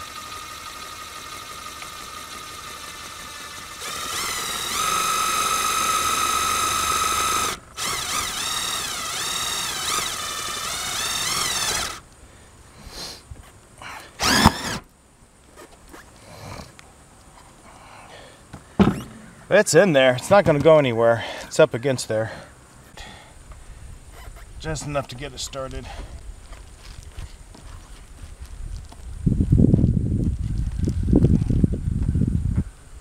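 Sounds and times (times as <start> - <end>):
cordless drill driving screw: 0.1 - 12.0, 14.2 - 14.9.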